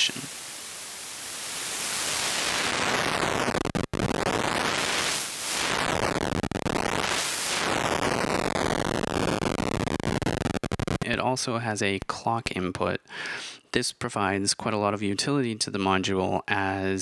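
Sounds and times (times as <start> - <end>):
sweeping digital white noise: 0.0 - 11.4.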